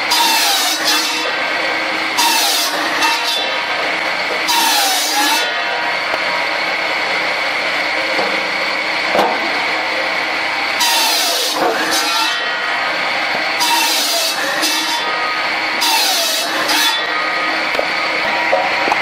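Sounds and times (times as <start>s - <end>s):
saw blade rasping through log: 0.0s - 1.4s, 2.0s - 6.0s, 10.8s - 17.7s
circular saw whine: 0.0s - 19.0s.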